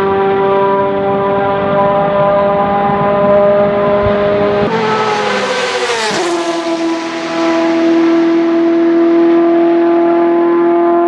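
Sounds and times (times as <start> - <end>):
race car engine running hard: 0.0 - 11.0.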